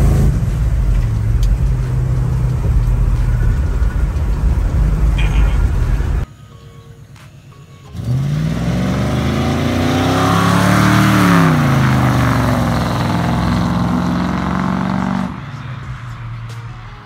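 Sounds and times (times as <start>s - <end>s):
car engine accelerating past: 7.9s - 17.0s.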